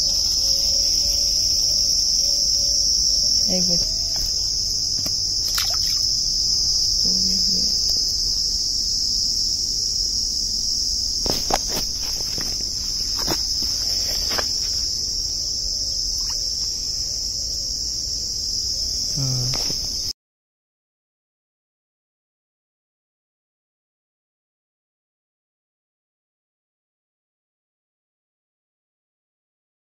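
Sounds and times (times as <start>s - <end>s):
insects chirring: 0.0s - 20.2s.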